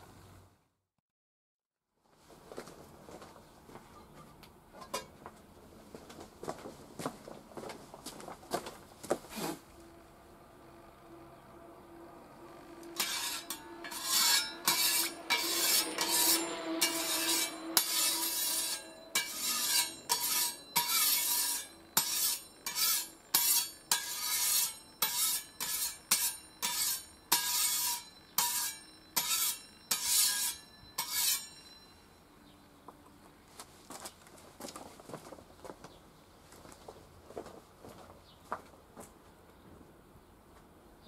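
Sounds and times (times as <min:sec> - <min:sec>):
metal scraper scraping steel: 0:12.5 - 0:32.1.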